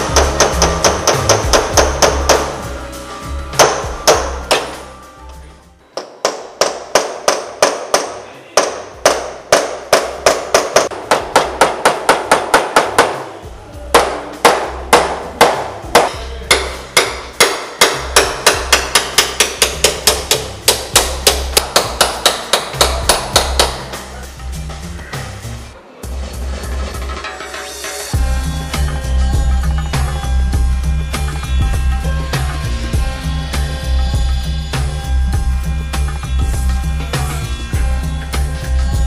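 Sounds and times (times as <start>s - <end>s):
hammer striking metal: 0.0s - 2.7s, 3.5s - 5.0s, 6.0s - 24.2s.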